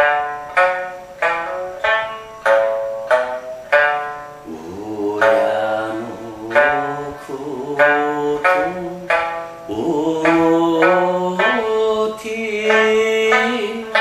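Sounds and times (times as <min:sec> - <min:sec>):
sanshin plucked: 0:00.0 - 0:14.0
man singing: 0:04.4 - 0:14.0.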